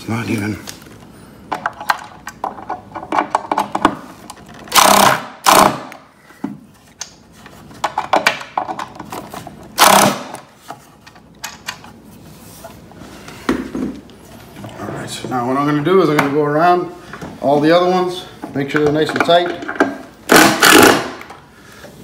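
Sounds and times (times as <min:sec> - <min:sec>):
tool handling clicks and knocks: 0:01.5 - 0:05.0, 0:06.3 - 0:10.0, 0:10.6 - 0:12.0, 0:18.4 - 0:20.2.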